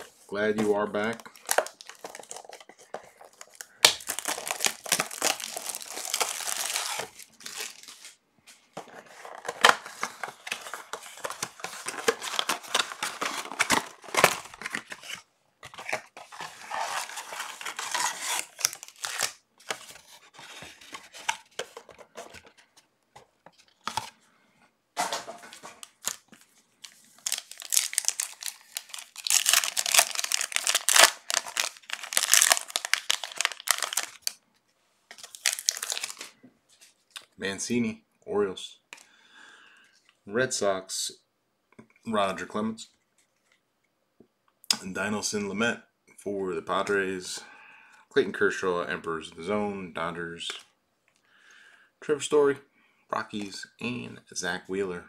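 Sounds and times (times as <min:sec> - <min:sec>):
foil wrappers tearing and crinkling: 0:03.3 - 0:08.2, 0:09.2 - 0:15.2, 0:15.8 - 0:19.9, 0:25.6 - 0:34.4, 0:35.1 - 0:36.3.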